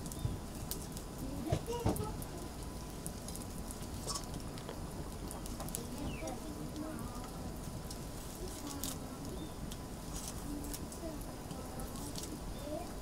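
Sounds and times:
steady low hum: 0.0s - 13.0s
faint chirping calls: 4.0s - 4.4s, 5.2s - 7.6s, 8.7s - 13.0s.

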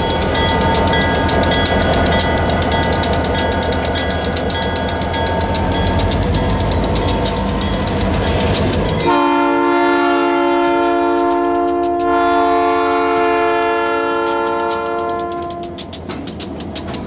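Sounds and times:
diesel locomotive rumble: 0.0s - 17.0s
locomotive air horn chord: 9.0s - 15.8s.

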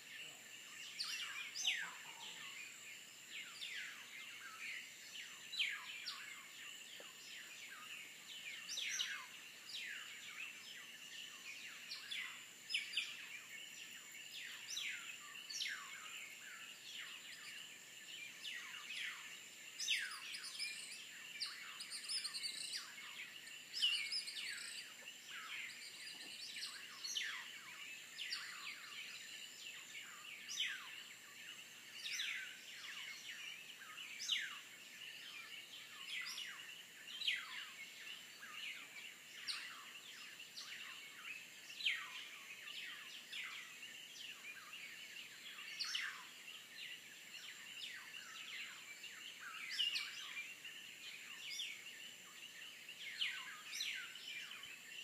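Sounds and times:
frogs whistling calls: 0.2s - 17.7s.

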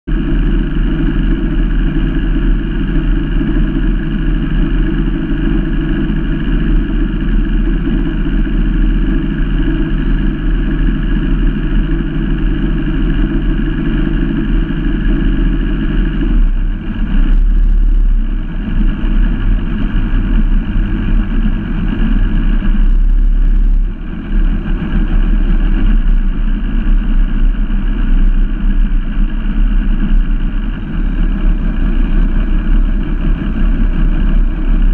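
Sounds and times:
boat engine rumbling: 0.1s - 34.9s.

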